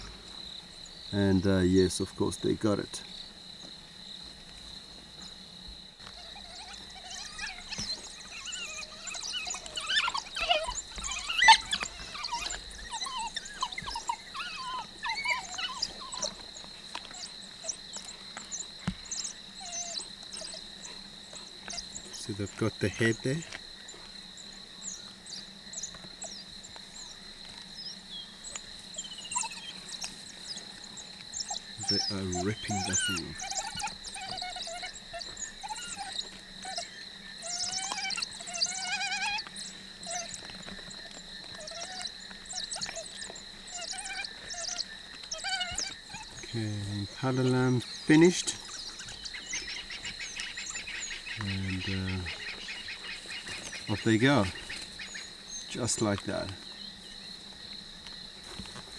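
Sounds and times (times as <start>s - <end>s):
wild dogs twittering chirps: 0.0s - 3.7s, 5.2s - 58.9s
high insect drone: 0.0s - 58.9s.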